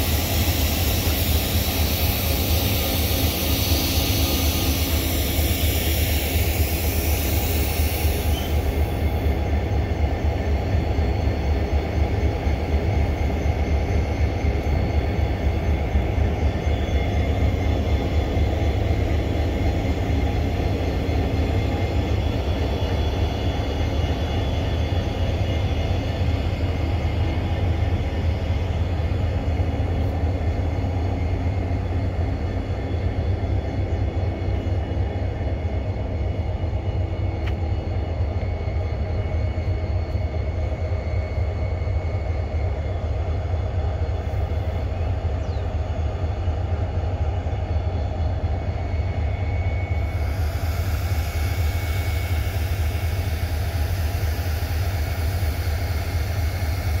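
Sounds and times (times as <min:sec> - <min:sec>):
locomotive engine humming: 0:00.0 - 0:57.0
high hiss: 0:49.9 - 0:57.0.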